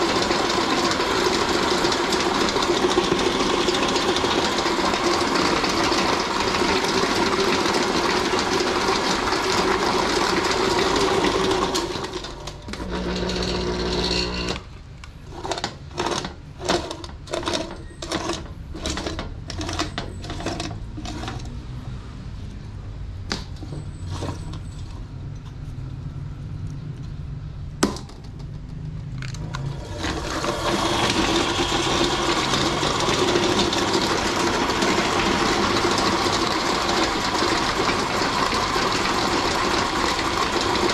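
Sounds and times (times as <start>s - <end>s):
electric meat grinder running: 0.0s - 14.7s, 29.6s - 40.9s.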